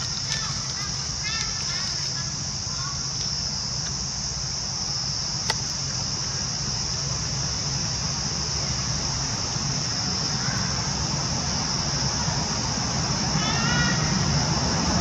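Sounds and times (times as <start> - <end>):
insects droning: 0.0 - 15.0
sharp click: 5.4 - 5.8.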